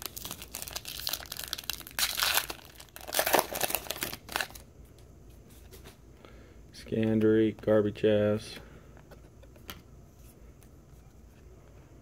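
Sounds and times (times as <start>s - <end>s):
plastic wrapper crinkling and tearing: 0.0s - 4.6s.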